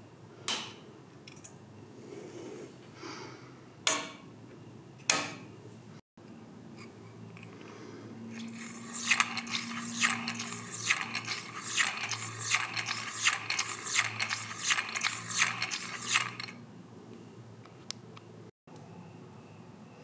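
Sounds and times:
hand-cranked sharpener gears clicking: 8.3 - 16.6.

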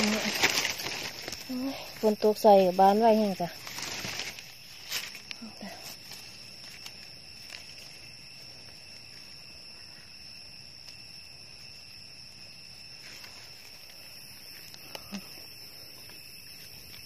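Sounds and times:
rustling in leaf litter: 0.0 - 9.4, 12.9 - 14.7
insects buzzing: 0.0 - 17.0.

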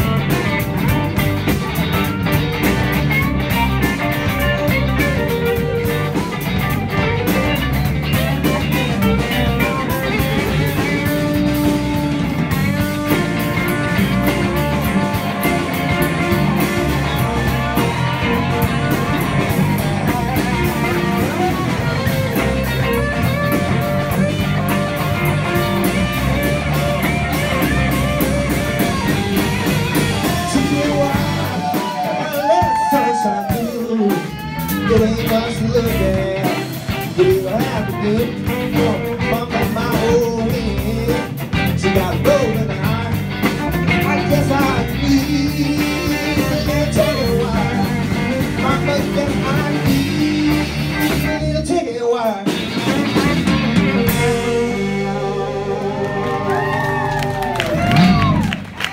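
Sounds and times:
drum kit: 0.0 - 58.9
electric guitar: 0.0 - 58.9.

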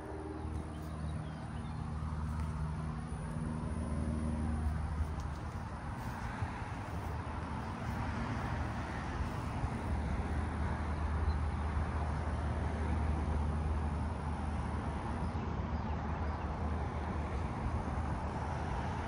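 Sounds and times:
fan air rushing: 0.0 - 12.4
low hum: 0.0 - 12.4.

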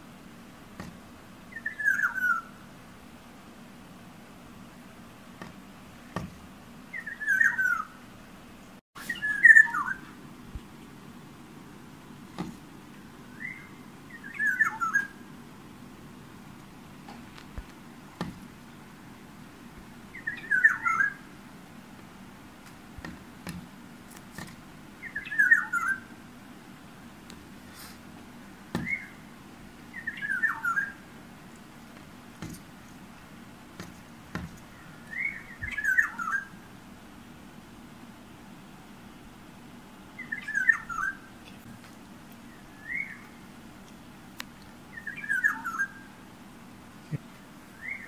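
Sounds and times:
bird fluty whistled phrases: 1.5 - 2.5, 6.9 - 7.9, 9.0 - 10.1, 13.3 - 15.2, 20.2 - 21.2, 25.0 - 26.0, 29.9 - 31.0, 35.1 - 36.5, 40.2 - 41.2, 42.7 - 43.3, 44.9 - 46.1, 47.8 - 48.0.

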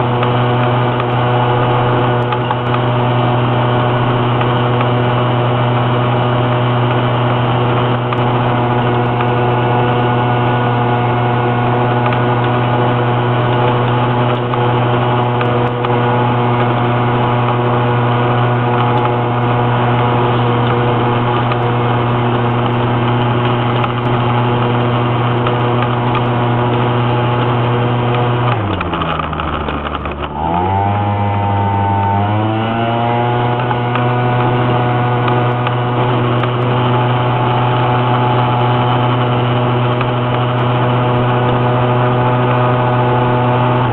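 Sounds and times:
scooter engine revving: 0.0 - 43.9.

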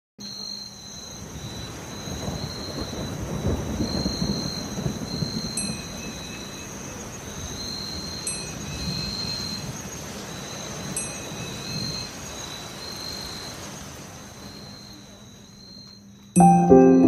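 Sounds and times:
rain patter: 1.2 - 15.4
low thunder rumble: 2.2 - 6.4
chime note: 16.4 - 17.0.

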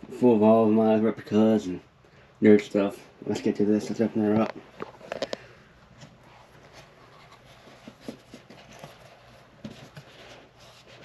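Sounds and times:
cardboard packaging rustling: 4.3 - 11.0.

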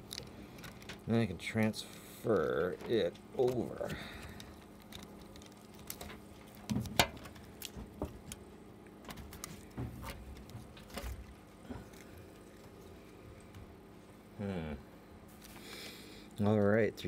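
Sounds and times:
steady faint hum: 0.0 - 17.0.

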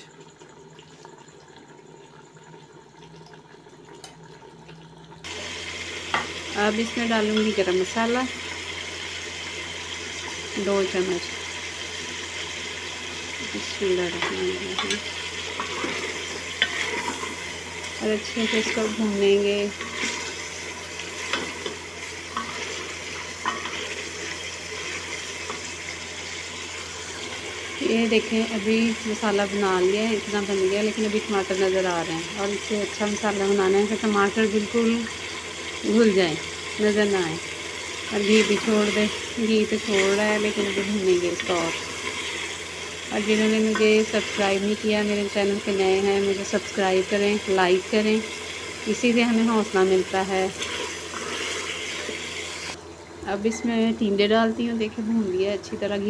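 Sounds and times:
food sizzling in a pot: 0.0 - 56.0
spatula scraping a pot: 14.2 - 19.0, 19.7 - 25.8.

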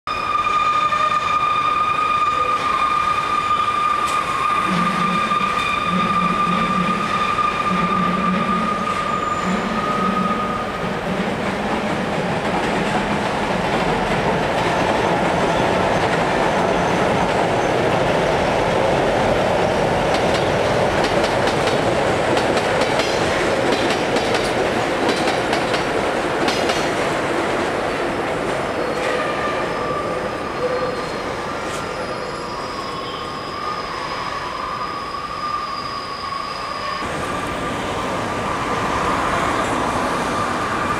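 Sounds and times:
high-pitched squeal: 0.1 - 11.0, 28.8 - 40.9
train rumbling across viaduct: 0.1 - 40.9.

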